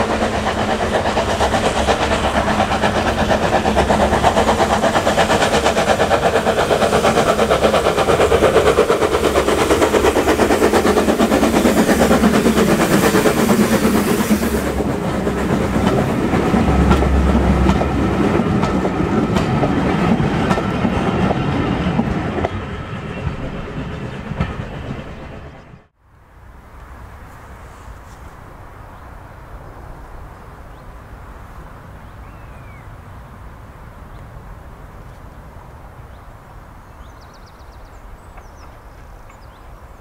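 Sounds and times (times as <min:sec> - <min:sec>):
coaches clacking over rail joints: 0:00.0 - 0:23.6
outdoor background: 0:00.0 - 0:40.0
steam locomotive passing: 0:00.0 - 0:40.0.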